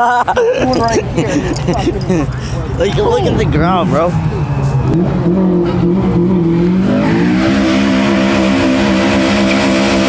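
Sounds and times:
car engine revving high: 0:02.9 - 0:10.0.

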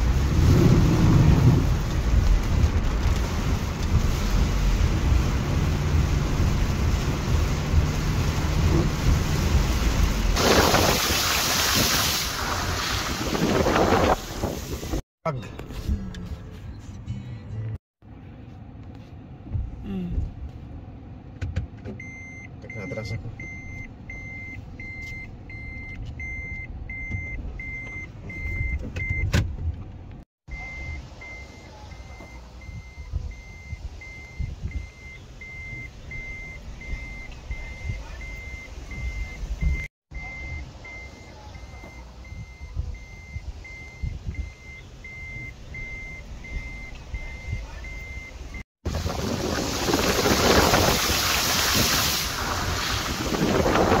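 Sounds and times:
vehicle warning beeper: 0:22.0 - 0:29.3, 0:30.5 - 0:48.6.

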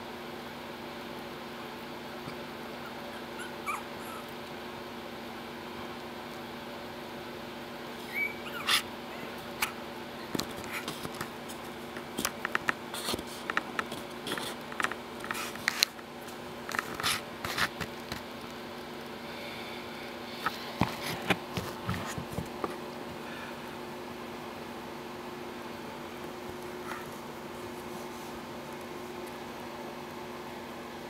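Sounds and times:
small claws clicking and scratching: 0:08.7 - 0:18.6.

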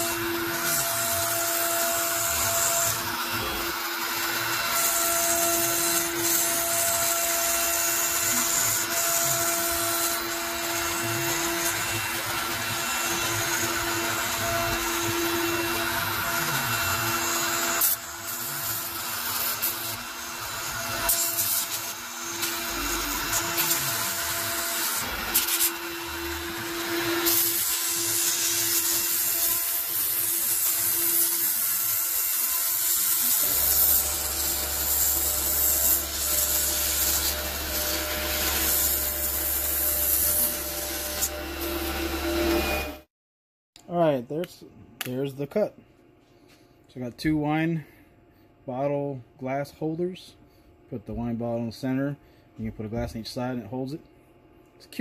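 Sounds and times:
router bit cutting acrylic: 0:00.0 - 0:43.1
router spindle hum: 0:00.0 - 0:43.1.

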